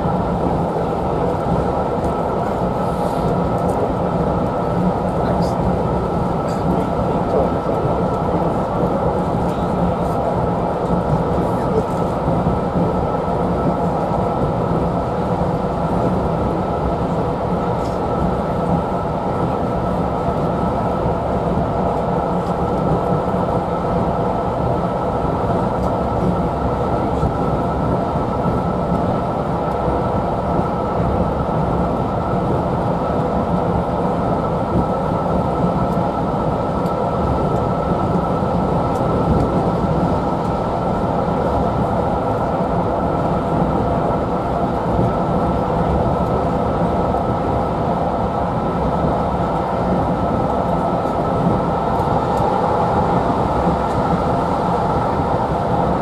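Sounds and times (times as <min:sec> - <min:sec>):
constant hum: 0:00.0 - 0:56.0
train coach rumbling on rails: 0:00.0 - 0:56.0.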